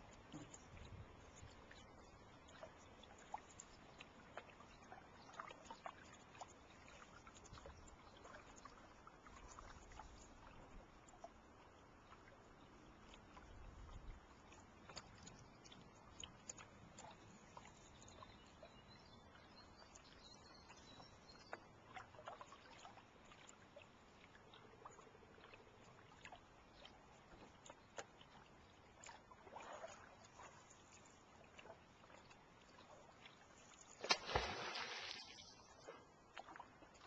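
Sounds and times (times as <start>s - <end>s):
small clicks and ticks: 0.0s - 4.5s, 14.4s - 18.2s
water lapping against a canoe: 0.0s - 37.0s.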